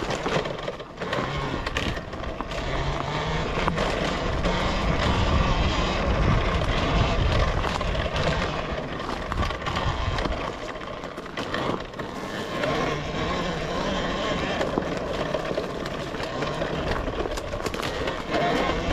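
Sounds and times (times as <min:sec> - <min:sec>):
bike rattling over bumps: 0:00.0 - 0:18.9
wind buffeting microphone: 0:03.5 - 0:10.5.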